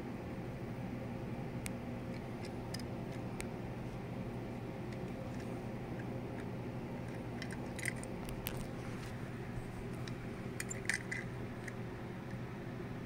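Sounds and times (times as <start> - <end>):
low hum: 0.0 - 13.0
metal toy car clicking: 7.1 - 8.1, 10.6 - 11.8.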